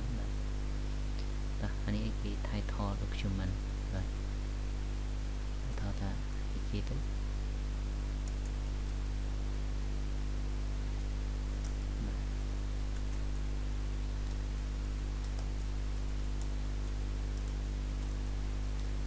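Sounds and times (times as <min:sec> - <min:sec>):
recording hiss: 0:00.0 - 0:10.0
electrical hum: 0:00.0 - 0:19.0
computer keys clicking: 0:08.2 - 0:09.1, 0:11.6 - 0:11.8, 0:12.9 - 0:13.2, 0:14.2 - 0:14.6, 0:15.2 - 0:15.7, 0:16.4 - 0:19.0.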